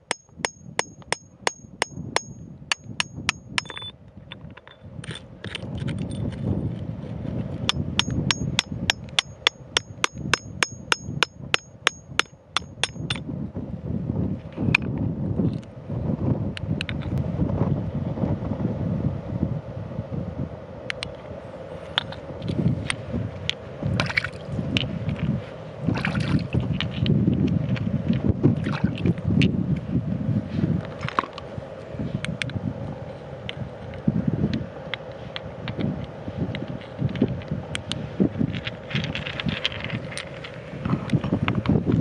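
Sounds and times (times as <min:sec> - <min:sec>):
hammer striking chisel on rock: 0:00.0 - 0:03.9, 0:07.7 - 0:13.2
wind buffeting microphone: 0:00.0 - 0:42.0.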